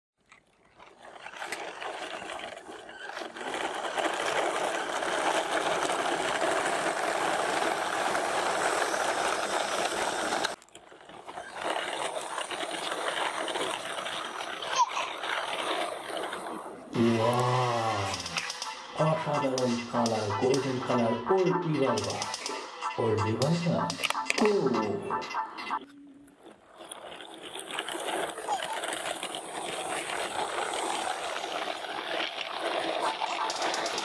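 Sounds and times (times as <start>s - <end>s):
toy truck wheels rolling on asphalt: 0.2s - 18.9s, 25.8s - 34.0s
man talking: 17.0s - 18.4s, 19.0s - 22.4s, 23.0s - 25.3s.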